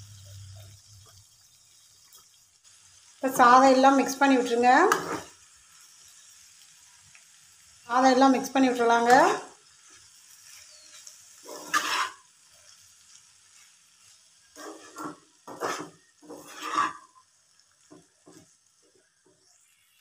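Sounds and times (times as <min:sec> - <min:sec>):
faint steady hiss: 0:00.0 - 0:20.0
spatula scraping frying pan: 0:04.8 - 0:05.4, 0:09.0 - 0:12.8, 0:13.4 - 0:19.0.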